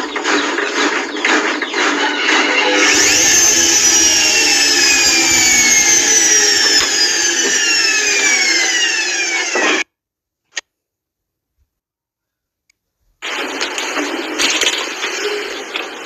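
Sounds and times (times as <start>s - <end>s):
washing machine motor whining: 0.0s - 9.8s.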